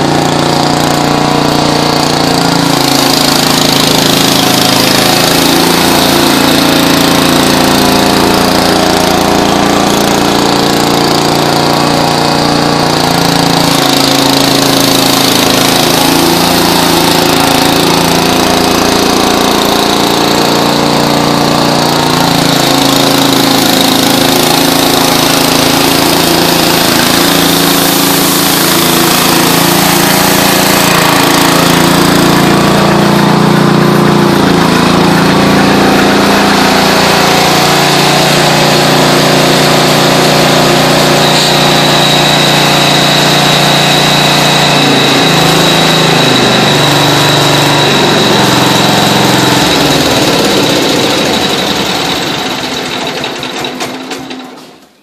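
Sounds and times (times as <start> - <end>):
small gasoline engine running: 0.0 - 55.0.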